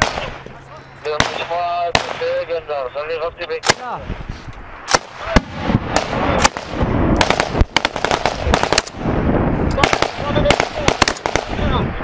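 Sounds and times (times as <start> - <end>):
gunshots: 0.0 - 0.4, 1.1 - 2.5, 3.6 - 4.0, 4.8 - 11.8.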